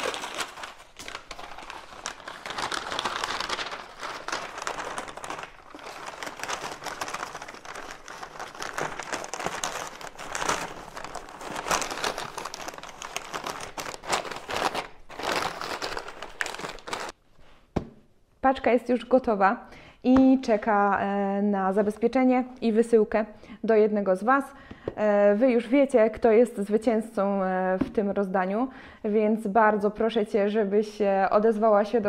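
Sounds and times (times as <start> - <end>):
wrapping material crinkling: 0.0 - 17.2.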